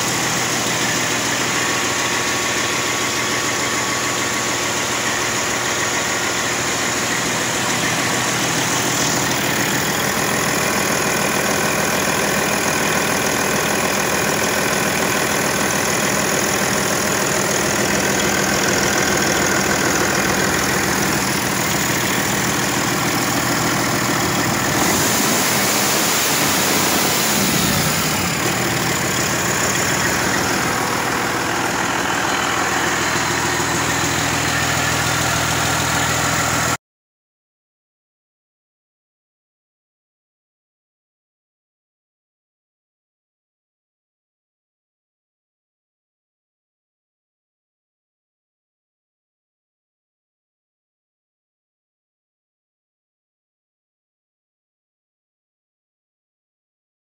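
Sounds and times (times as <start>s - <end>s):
diesel engine idling: 0.0s - 36.8s
engine fan turning: 0.0s - 36.8s.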